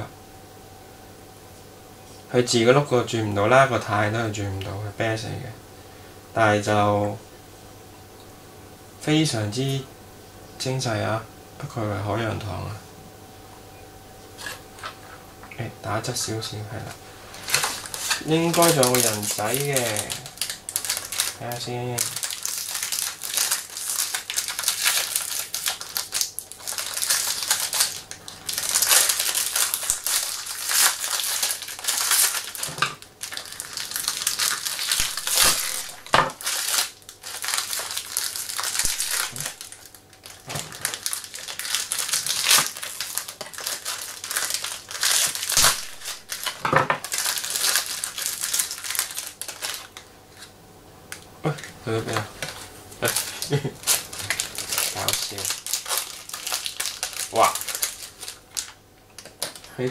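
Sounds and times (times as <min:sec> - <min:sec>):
paper and plastic wrap crinkling: 0:16.0 - 0:50.5, 0:51.5 - 0:59.9.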